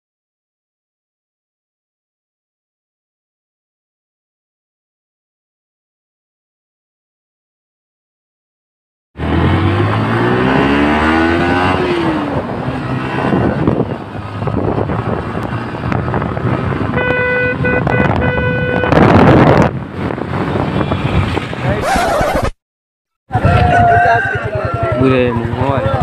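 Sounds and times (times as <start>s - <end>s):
vehicle engine accelerating: 9.2s - 17.0s
road and wind noise: 9.2s - 22.6s, 23.3s - 26.0s
vehicle horn short honks: 16.9s - 19.2s.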